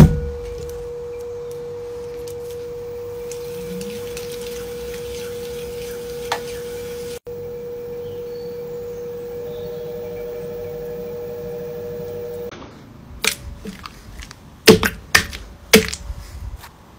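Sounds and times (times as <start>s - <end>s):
pottery wheel whining: 0.0s - 12.5s
hand slapping wet clay: 13.2s - 16.1s.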